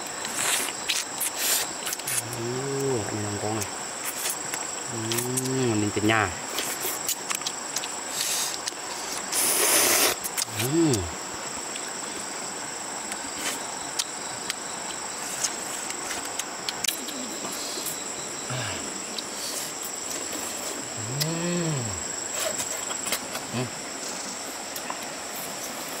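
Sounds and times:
high insect drone: 0.0s - 26.0s
person humming: 2.2s - 3.6s, 4.9s - 5.8s, 10.4s - 11.2s, 18.5s - 19.0s, 20.9s - 22.2s, 23.5s - 23.8s.

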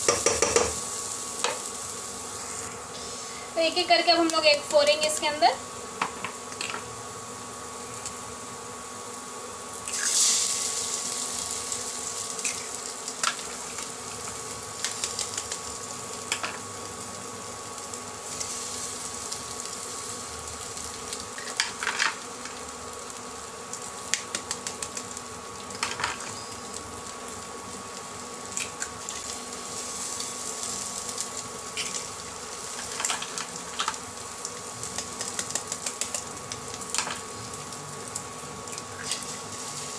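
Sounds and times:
eggshell tapping on pan: 0.0s - 0.8s
induction cooktop humming: 0.0s - 39.9s.

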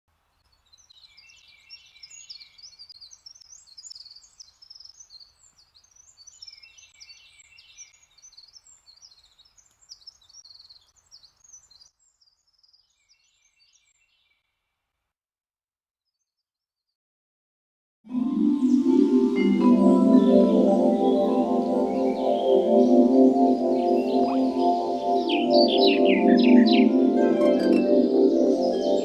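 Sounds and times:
birds chirping and trilling: 0.5s - 14.4s, 18.1s - 29.0s.

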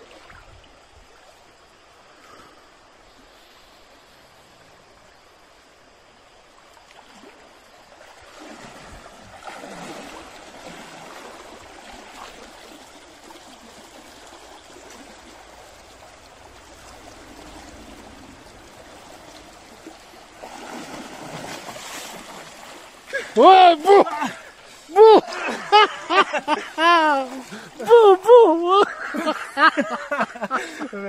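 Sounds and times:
shallow stream running: 0.0s - 31.0s
water sloshing around legs: 6.7s - 29.6s
splashing into water: 6.8s - 29.2s.

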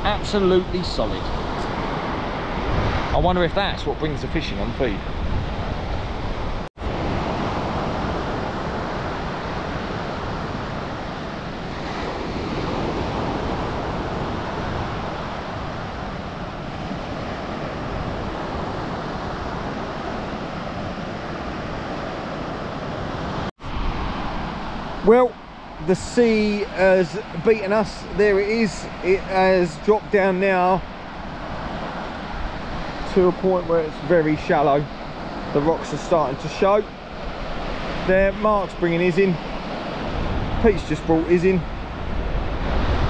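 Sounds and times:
wind on microphone: 0.0s - 25.0s, 39.4s - 43.0s
surf washing on stony beach: 0.0s - 43.0s.

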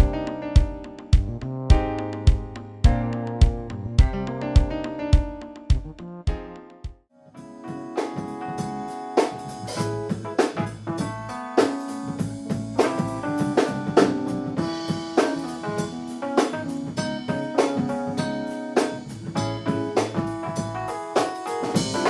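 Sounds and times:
electric bass line: 0.0s - 6.6s, 12.2s - 17.5s
drum hits: 0.0s - 7.0s, 7.8s - 22.0s
electric keyboard chords: 0.0s - 22.0s.

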